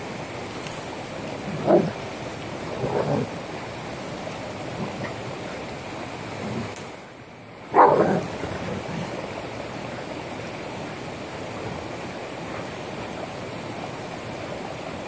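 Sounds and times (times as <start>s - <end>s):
steady rushing noise: 0.0s - 15.0s
animals scuffling and growling: 0.5s - 10.2s.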